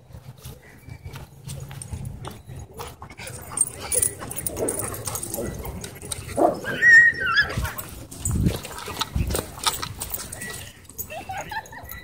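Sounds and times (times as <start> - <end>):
dog whining: 6.4 - 7.8.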